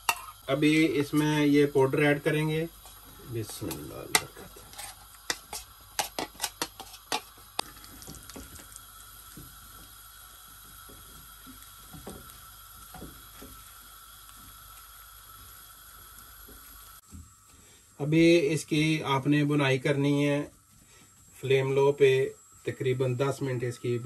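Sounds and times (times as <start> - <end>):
spatula scraping: 0.0 - 0.4, 2.8 - 8.0
steady hiss of hot fat: 0.0 - 24.0.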